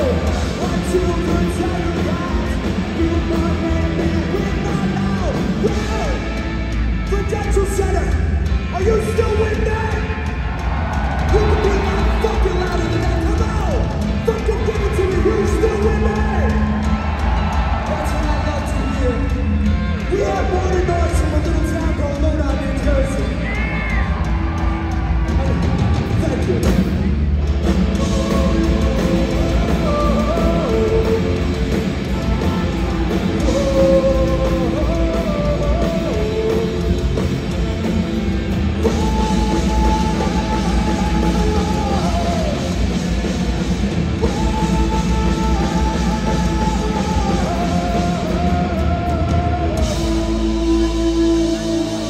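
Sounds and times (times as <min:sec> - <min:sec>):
punk rock band playing live: 0:00.0 - 0:52.0
person singing: 0:27.9 - 0:37.3, 0:38.8 - 0:43.0, 0:44.2 - 0:52.0.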